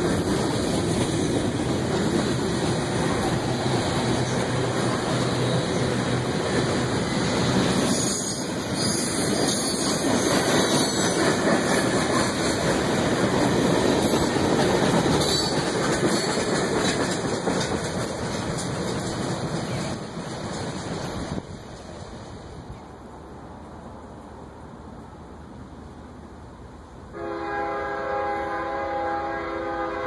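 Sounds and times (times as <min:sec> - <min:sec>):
steel wheels clattering on rails: 0:00.0 - 0:22.8
freight train rolling past: 0:00.0 - 0:30.0.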